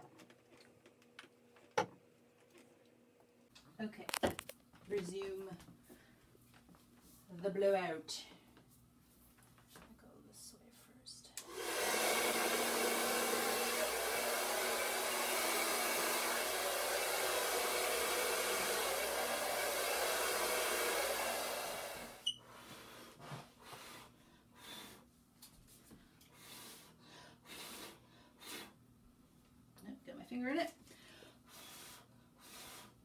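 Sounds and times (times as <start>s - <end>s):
hair dryer blowing: 11.4s - 22.3s
faint puffs of breath: 26.3s - 28.8s, 30.8s - 33.0s.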